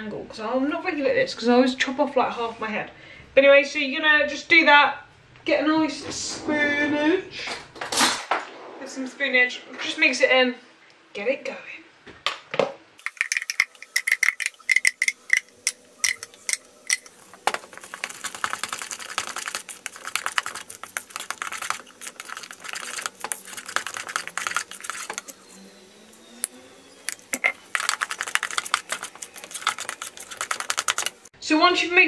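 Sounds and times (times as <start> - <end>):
spoon stirring batter in plastic bowl: 13.0 - 25.6, 27.1 - 31.3
spoon scraping blender jug: 13.0 - 25.7, 26.4 - 31.3.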